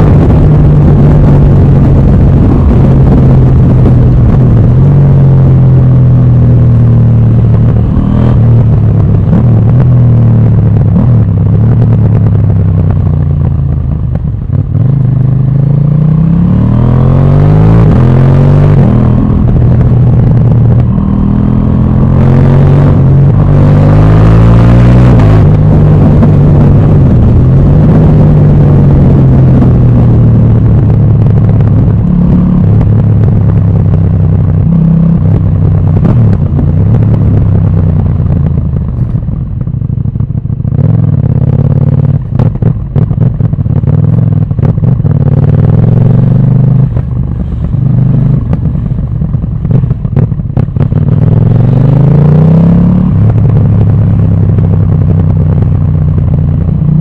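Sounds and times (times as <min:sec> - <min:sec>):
motorcycle engine revving: 0:00.0 - 0:57.0
exhaust crackles: 0:17.7 - 0:57.0.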